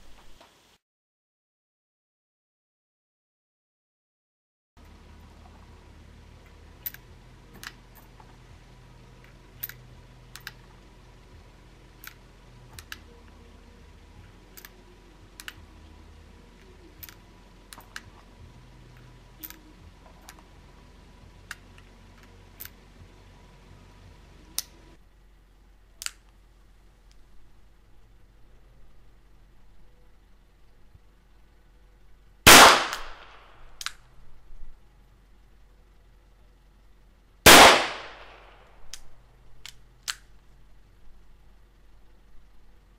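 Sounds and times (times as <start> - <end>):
revolver loading clicks: 9.2 - 10.7, 14.5 - 15.6, 16.6 - 18.3, 19.0 - 20.5.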